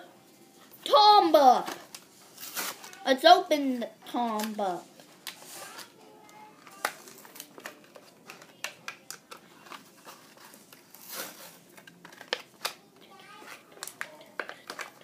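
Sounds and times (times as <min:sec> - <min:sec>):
packaging crinkling tear: 0:01.9 - 0:03.0, 0:05.2 - 0:12.8
plastic packaging crackling: 0:04.3 - 0:15.0.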